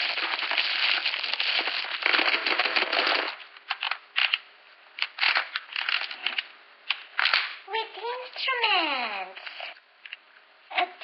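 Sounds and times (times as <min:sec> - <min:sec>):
shrink wrap crinkling and tearing: 0:00.0 - 0:04.4, 0:05.0 - 0:07.6.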